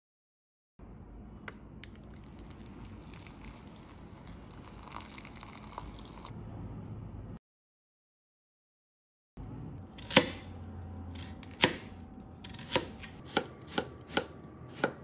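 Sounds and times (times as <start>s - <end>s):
water pouring into a glass bowl: 2.1s - 6.4s.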